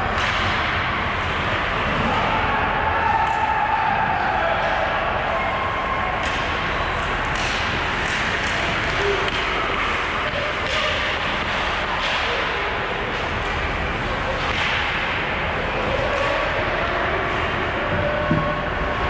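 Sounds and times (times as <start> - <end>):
sticks striking puck: 0.0 - 0.7, 6.2 - 18.6.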